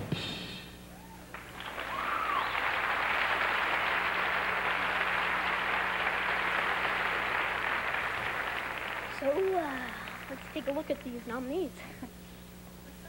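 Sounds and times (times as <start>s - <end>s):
person whooping: 0.9s - 2.6s
audience applauding: 1.3s - 11.7s.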